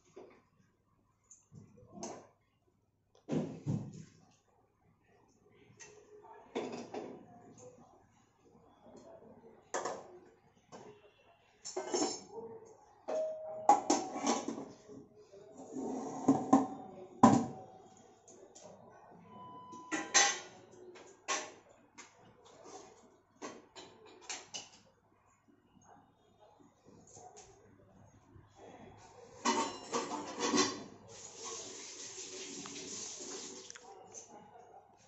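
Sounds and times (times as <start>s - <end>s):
pots and dishes clattering: 11.6s - 12.4s, 13.1s - 14.8s, 19.8s - 21.6s, 23.4s - 24.8s, 29.4s - 31.0s.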